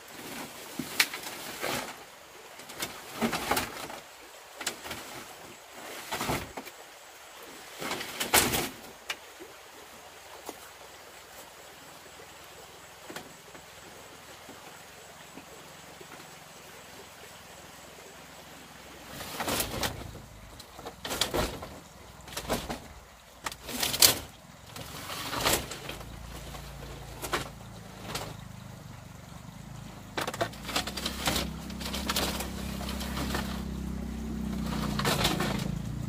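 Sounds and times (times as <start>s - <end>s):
small engine running: 27.3s - 36.0s.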